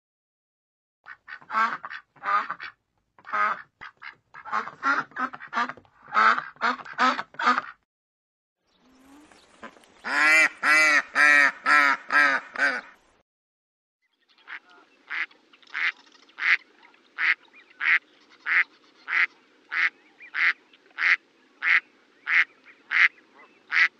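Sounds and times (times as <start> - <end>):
ducks quacking: 1.1 - 7.8, 9.2 - 13.0, 14.4 - 23.9.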